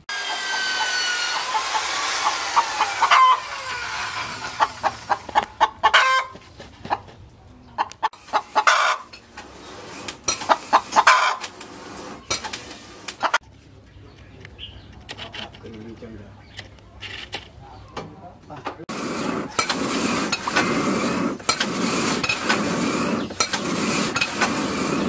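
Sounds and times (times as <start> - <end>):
chickens clucking: 0.2 - 20.8
chicken long falling call: 2.8 - 4.7.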